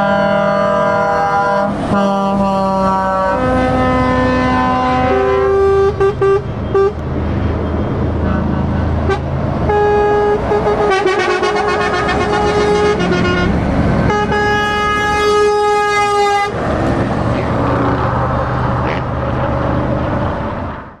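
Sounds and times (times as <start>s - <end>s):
truck horn blasts: 0.0s - 16.6s
diesel truck engine passing: 0.0s - 21.0s.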